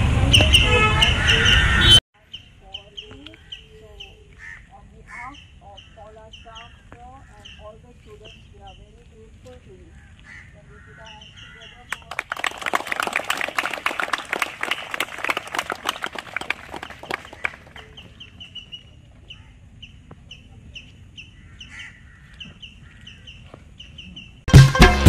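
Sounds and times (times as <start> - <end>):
bird chirping: 0.3 - 9.2, 10.8 - 12.1, 17.3 - 24.5
crowd clapping: 11.9 - 18.1.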